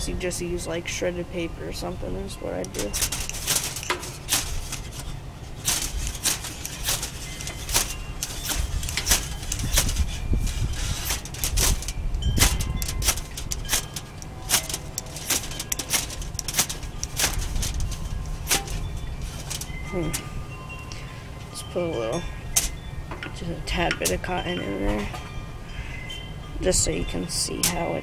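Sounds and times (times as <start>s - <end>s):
wind rumble on microphone: 0.0s - 28.0s
ferro rod rasping scrapes: 3.1s - 19.8s.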